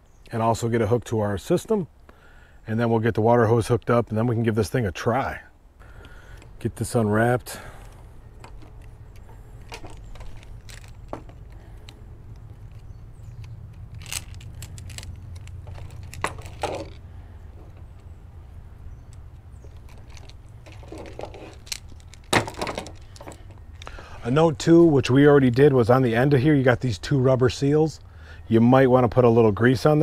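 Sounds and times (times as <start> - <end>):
low steady hum: 0.0 - 30.0
hose being handled: 7.5 - 18.1, 19.1 - 24.4.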